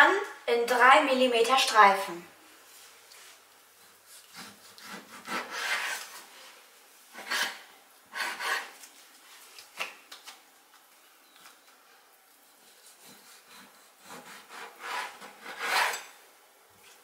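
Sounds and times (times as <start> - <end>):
knife slicing meat: 4.1 - 6.2
knife scraping wooden board: 4.1 - 6.3, 7.1 - 8.9, 12.6 - 16.2.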